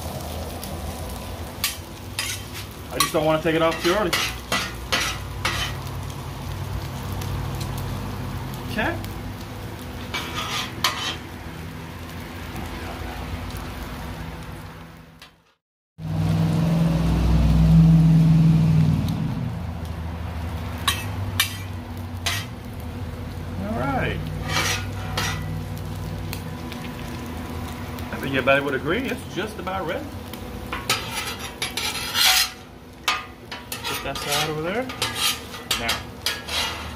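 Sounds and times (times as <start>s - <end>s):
bacon sizzling on a griddle: 0.0s - 36.9s
metal spatulas scraping steel: 1.6s - 5.8s, 10.1s - 11.2s, 20.9s - 21.7s, 22.3s - 22.5s, 24.4s - 25.5s, 30.7s - 36.9s.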